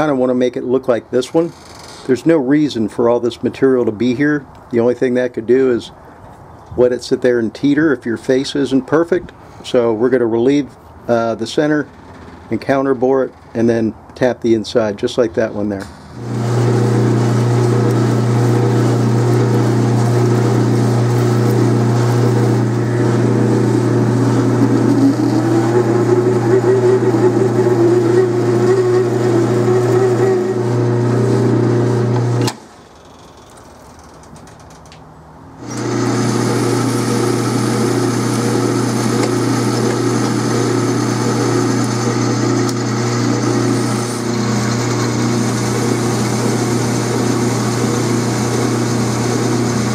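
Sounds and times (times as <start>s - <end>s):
drill bit cutting metal: 16.2s - 32.6s, 35.6s - 49.9s
lathe motor hum: 16.2s - 32.6s, 35.6s - 49.9s
cutting tool counterboring metal: 35.6s - 49.9s.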